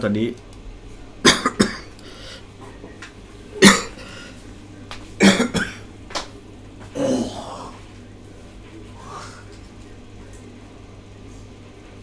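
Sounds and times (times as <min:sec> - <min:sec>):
man coughing: 0:01.2 - 0:01.9, 0:03.6 - 0:04.3, 0:05.2 - 0:05.9.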